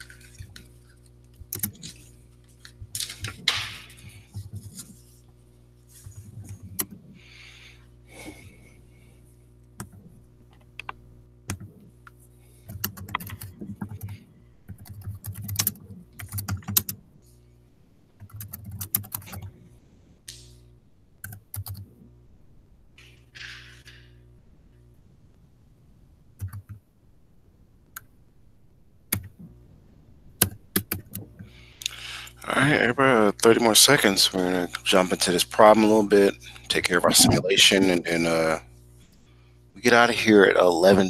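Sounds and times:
computer keyboard typing: 0.0 - 2.1, 12.6 - 17.0, 18.2 - 19.5, 21.2 - 21.9, 26.4 - 26.8, 30.4 - 32.0
low electrical hum: 0.0 - 41.0.

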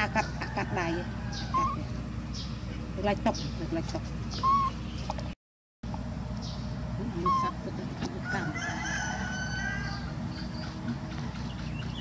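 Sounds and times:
fowl calling: 0.0 - 1.9.

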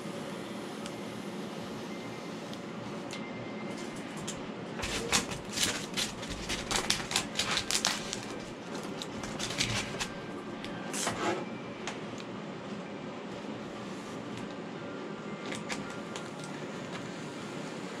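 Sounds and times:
steady low hum: 0.0 - 18.0
crackling clicks and scrapes: 3.8 - 10.2.

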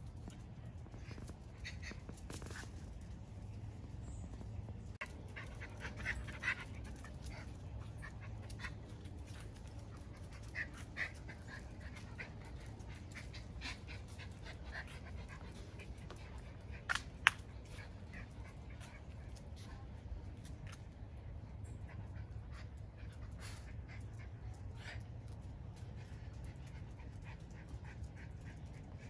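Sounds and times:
dog panting: 5.0 - 19.8, 21.8 - 29.0.

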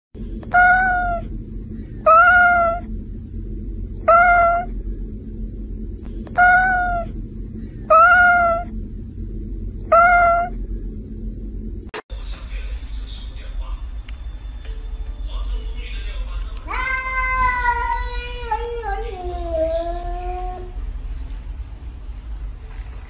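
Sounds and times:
low rumble: 0.2 - 23.0
cat meowing: 0.5 - 1.3, 2.0 - 2.9, 4.0 - 4.7, 6.3 - 7.1, 7.9 - 8.7, 9.8 - 10.6.

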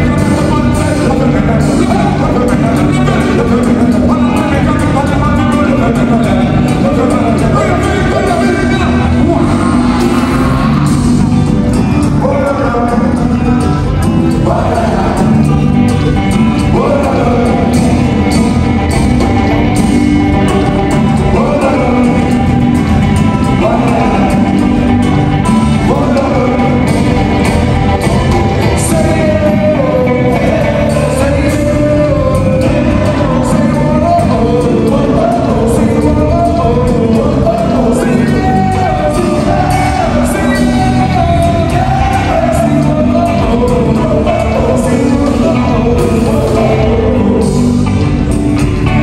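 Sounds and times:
bass guitar: 0.0 - 49.0
electric guitar: 0.0 - 49.0
person singing: 0.0 - 49.0
steady drum beat: 0.0 - 49.0.

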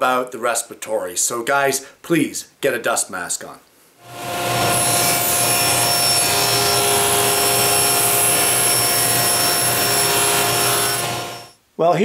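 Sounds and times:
table saw cutting hardboard: 4.0 - 11.6.

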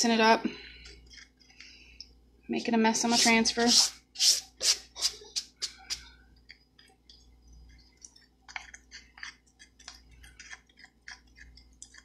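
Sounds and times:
stick scraping thick paste: 3.0 - 6.0, 8.5 - 12.0.

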